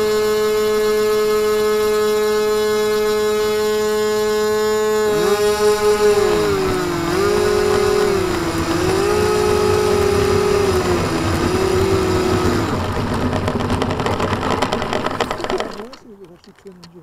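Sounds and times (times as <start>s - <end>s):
model airplane motor and propeller: 0.0s - 17.0s
clicking and rattling handling: 10.7s - 17.0s.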